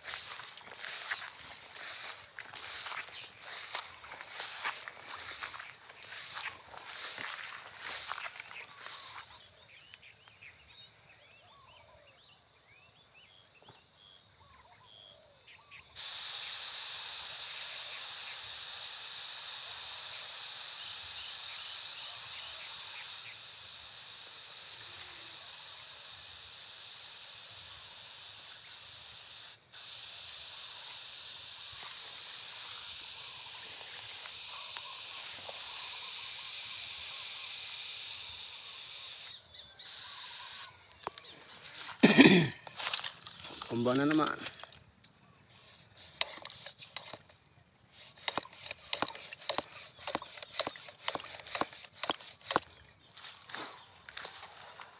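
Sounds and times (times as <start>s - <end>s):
even hiss: 0.0s - 9.8s, 16.0s - 44.8s
insects trilling: 0.0s - 54.9s.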